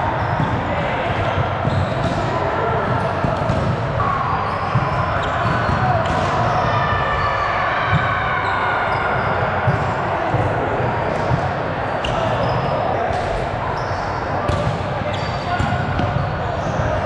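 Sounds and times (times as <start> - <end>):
hubbub of many voices: 0.0 - 17.0.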